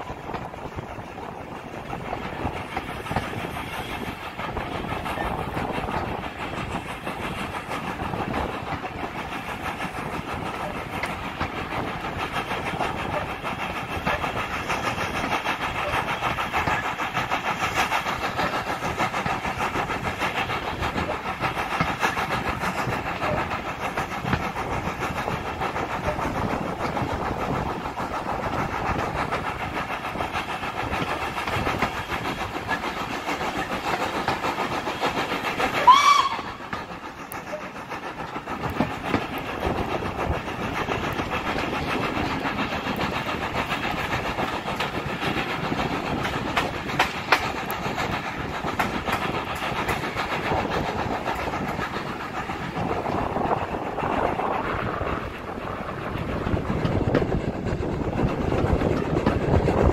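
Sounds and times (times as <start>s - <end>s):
train coaches running on track: 0.0s - 59.9s
steam locomotive whistle blast: 35.8s - 36.6s.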